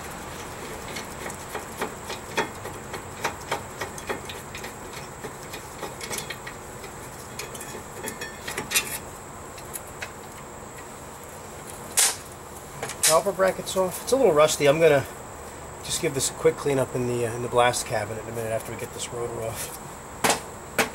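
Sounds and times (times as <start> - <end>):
sharp metal clank: 12.0 - 12.2.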